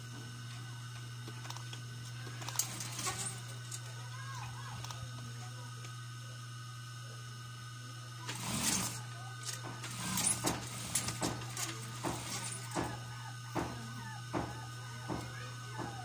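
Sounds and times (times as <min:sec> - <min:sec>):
sewing machine motor humming: 0:00.6 - 0:05.6, 0:08.1 - 0:16.0.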